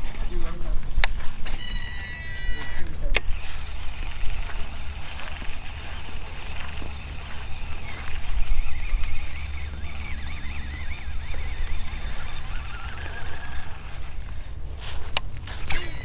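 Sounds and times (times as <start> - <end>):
faint wavering whistle: 1.5 - 2.8.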